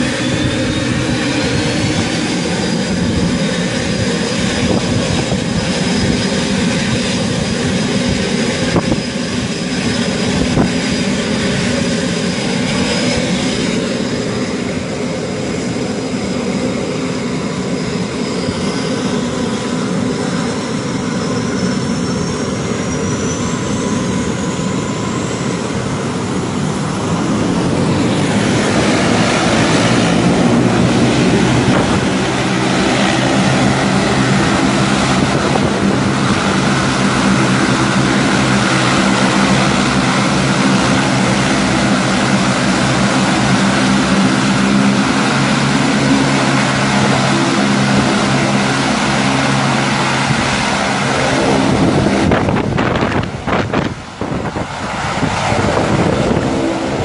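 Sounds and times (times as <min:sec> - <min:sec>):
turbine whine: 0:00.0 - 0:57.0
turboprop engines low rumble: 0:00.0 - 0:57.0.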